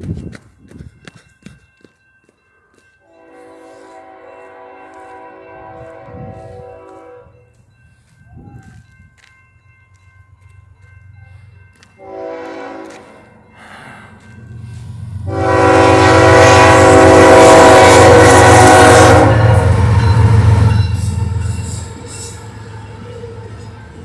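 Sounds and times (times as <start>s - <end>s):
train rumble: 0.0s - 24.0s
locomotive horn blasts: 3.0s - 7.4s, 12.0s - 13.2s, 15.2s - 21.0s.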